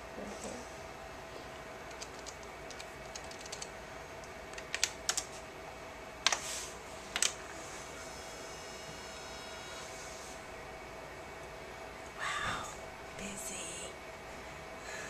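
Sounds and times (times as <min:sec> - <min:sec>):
faint steady hum: 0:00.0 - 0:15.0
console keys clicking: 0:01.9 - 0:03.7, 0:04.6 - 0:05.3.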